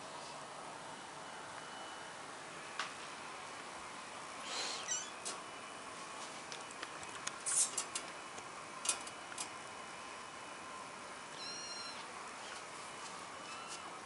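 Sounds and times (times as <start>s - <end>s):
kitten squeak: 4.6s - 5.2s, 11.3s - 12.1s, 13.4s - 13.9s.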